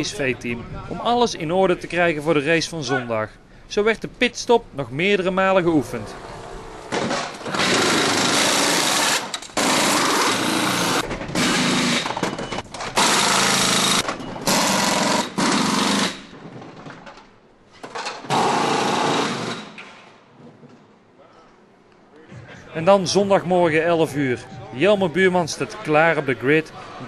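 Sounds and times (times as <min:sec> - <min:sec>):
pneumatic impact wrenches rattling: 0:06.9 - 0:17.2.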